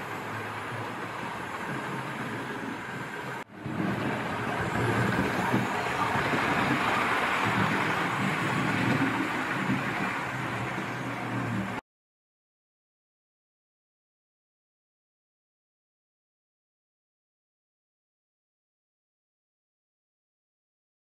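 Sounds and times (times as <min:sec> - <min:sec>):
wheels rumbling on rail: 0:00.0 - 0:11.8.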